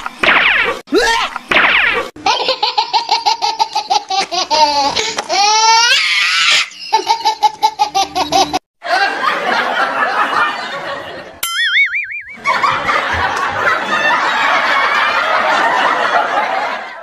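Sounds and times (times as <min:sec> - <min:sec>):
high-pitched laughing: 0:02.2 - 0:09.3.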